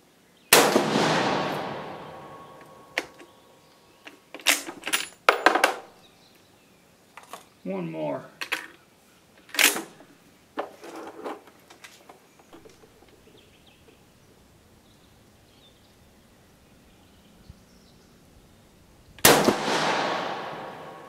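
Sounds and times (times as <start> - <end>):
rifle shot with echo: 0.5 - 3.2, 19.2 - 21.0.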